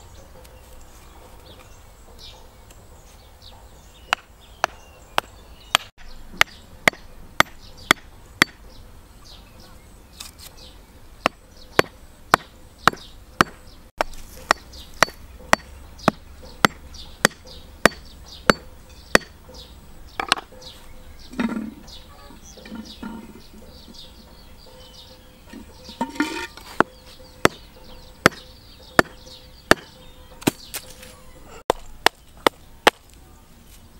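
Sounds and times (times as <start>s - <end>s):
birds chirping: 0.0s - 33.9s
hatchet knocking bamboo tubes: 4.1s - 8.6s, 11.2s - 19.4s, 20.2s - 20.5s, 26.0s - 30.6s, 31.7s - 33.2s.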